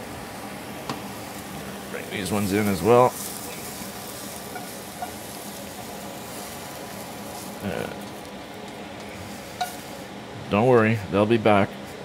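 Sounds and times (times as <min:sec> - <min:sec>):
mushrooms sizzling in frying pan: 0:00.0 - 0:10.2
spatula scraping pan: 0:03.2 - 0:05.4, 0:09.2 - 0:10.0.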